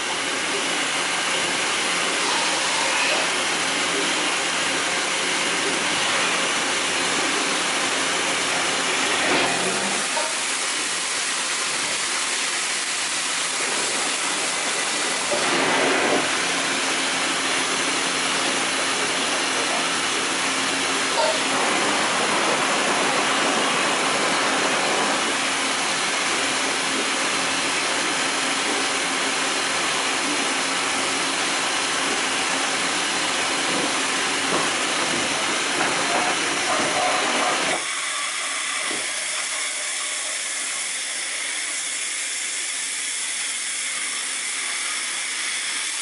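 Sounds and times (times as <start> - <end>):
machine hissing: 34.7 - 46.0.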